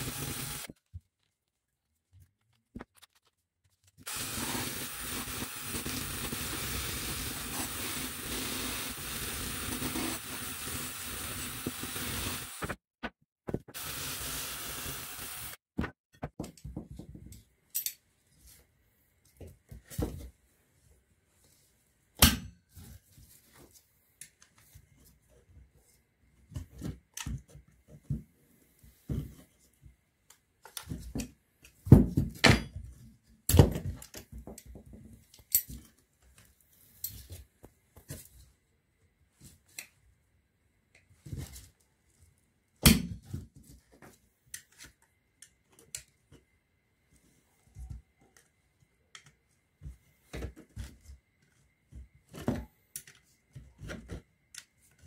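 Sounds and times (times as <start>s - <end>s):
drill wire brush scrubbing metal: 0.0s - 0.7s, 4.1s - 12.8s, 13.7s - 15.6s.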